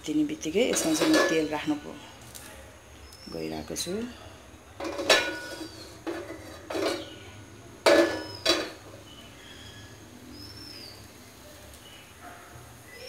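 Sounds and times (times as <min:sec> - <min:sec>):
bird chirping: 0:03.0 - 0:04.3, 0:05.4 - 0:13.0
metallic clanks: 0:04.8 - 0:08.9.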